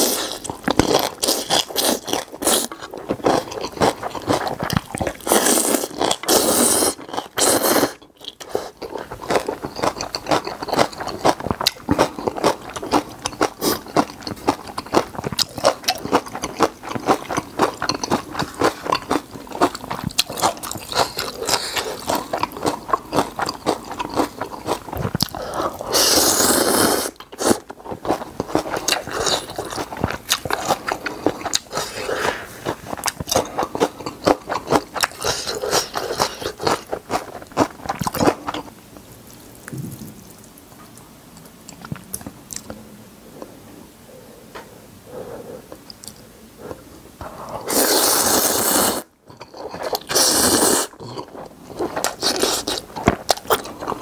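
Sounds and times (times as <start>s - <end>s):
wet chewing and mouth clicks: 0.0s - 42.8s, 45.7s - 54.0s
slurping noodles: 5.2s - 8.8s, 25.2s - 27.6s, 46.7s - 49.1s, 49.8s - 52.8s.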